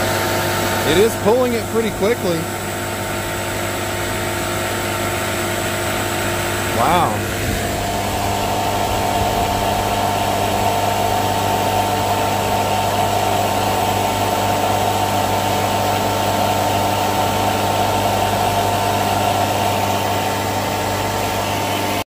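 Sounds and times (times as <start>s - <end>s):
machine humming with hiss: 0.0s - 22.0s.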